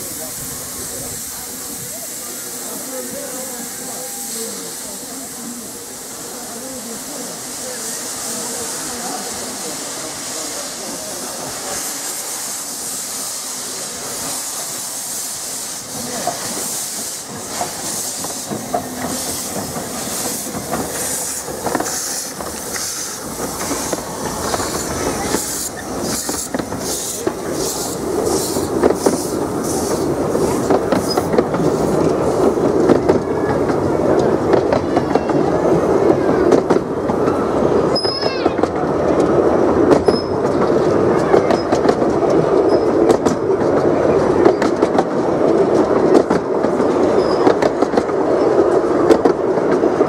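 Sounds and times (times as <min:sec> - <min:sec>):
steam locomotive hissing: 0:00.0 - 0:50.0
train wheels clattering on rails: 0:10.3 - 0:50.0.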